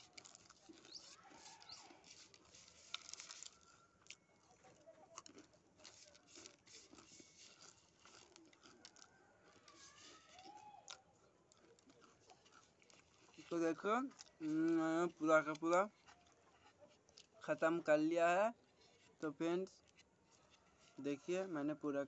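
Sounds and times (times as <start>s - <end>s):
chips being chewed: 0.0s - 17.4s.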